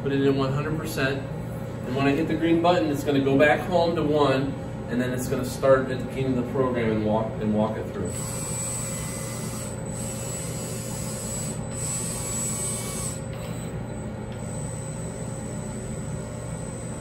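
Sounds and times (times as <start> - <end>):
robot arm motors whirring: 8.1 - 17.0
thin high whine: 8.1 - 17.0.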